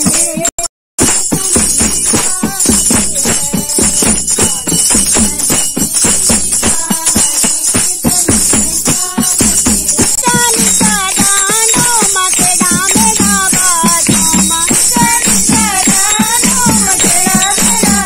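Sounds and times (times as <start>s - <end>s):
dholak drum beating: 0.0s - 18.0s
hand claps: 0.0s - 18.0s
jingling tambourine: 0.0s - 18.0s
women singing in chorus: 0.0s - 18.0s.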